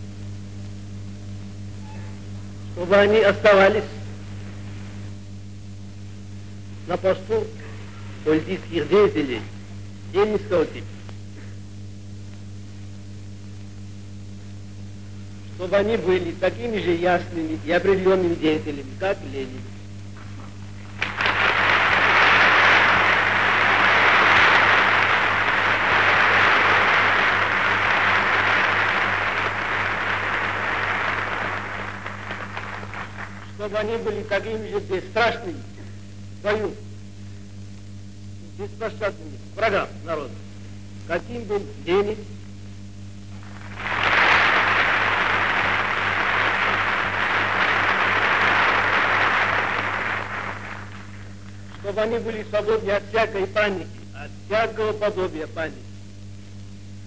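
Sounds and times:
low recording hum: 0.0s - 57.0s
audience applauding: 20.9s - 33.6s, 43.4s - 51.5s.

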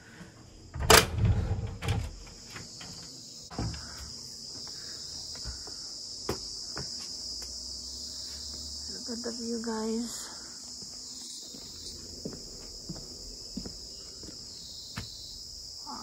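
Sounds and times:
insect chorus: 0.0s - 16.0s
door rattling: 0.7s - 3.0s.

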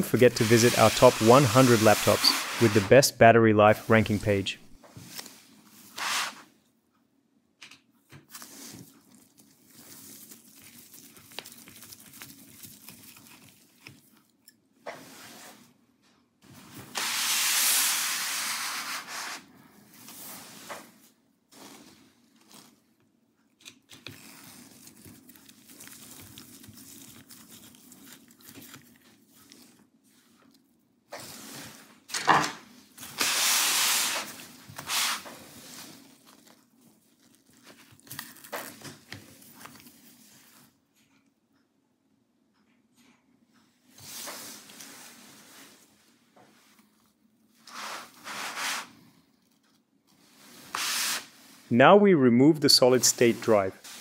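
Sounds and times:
scraping and rubbing handling noise: 0.0s - 6.6s, 16.4s - 23.0s, 31.2s - 41.1s, 43.9s - 51.7s, 52.6s - 54.0s.

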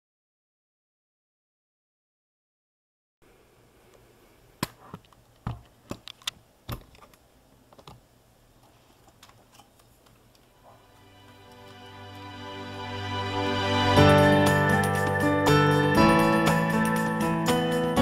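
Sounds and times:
background music: 10.6s - 18.0s.

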